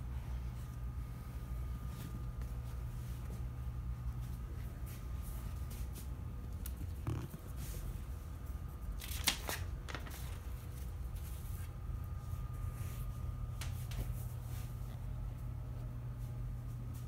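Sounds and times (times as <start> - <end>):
steady low hum: 0.0 - 17.0
paper rustling: 8.9 - 11.8
paper fluttering: 9.0 - 10.6.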